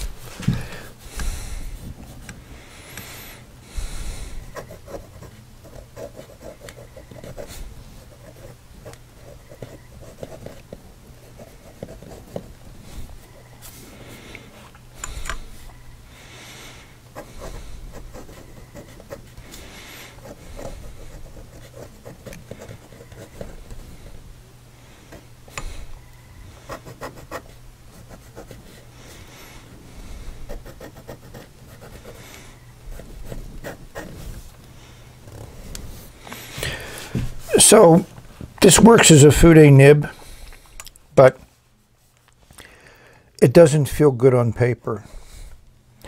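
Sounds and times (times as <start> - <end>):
pen nib scratching paper: 4.2 - 13.5, 17.2 - 24.2, 26.5 - 29.2, 30.2 - 34.4.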